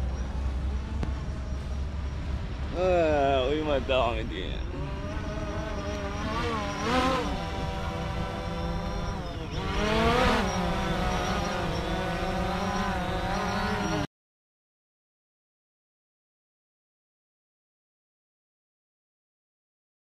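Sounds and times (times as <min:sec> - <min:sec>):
motor running: 0:04.5 - 0:14.1.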